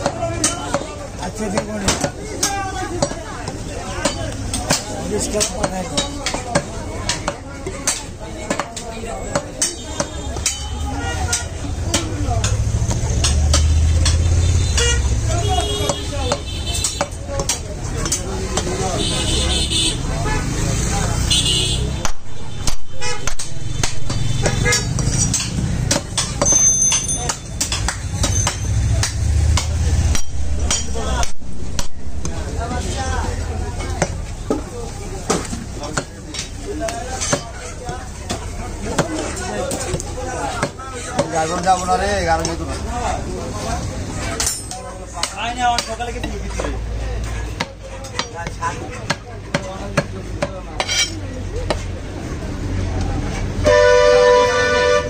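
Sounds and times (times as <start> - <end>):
knife chopping meat on wood: 22.0 - 26.5, 47.6 - 50.9.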